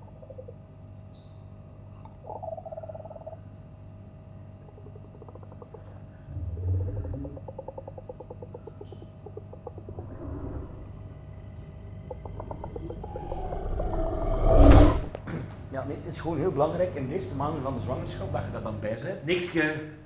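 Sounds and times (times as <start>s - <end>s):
low hum: 2.8s - 15.3s
creaking purr-like rattles: 4.6s - 15.2s.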